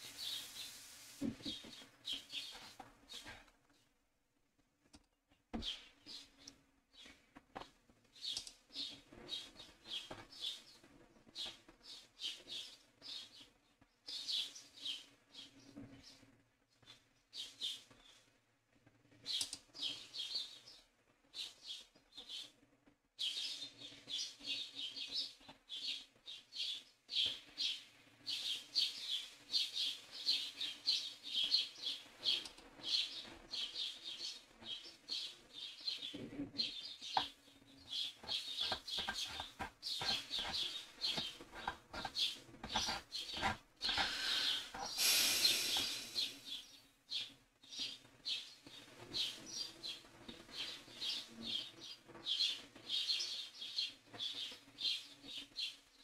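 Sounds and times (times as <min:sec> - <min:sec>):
birds chirping: 0:27.6 - 0:47.2
brief rush of noise: 0:45.0 - 0:46.4.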